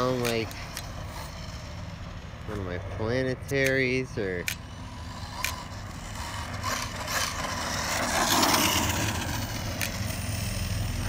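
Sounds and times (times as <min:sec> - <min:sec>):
sharp clicks: 0:00.0 - 0:01.1, 0:03.5 - 0:04.8, 0:05.4 - 0:05.7
rc car drivetrain grinding: 0:00.0 - 0:11.0.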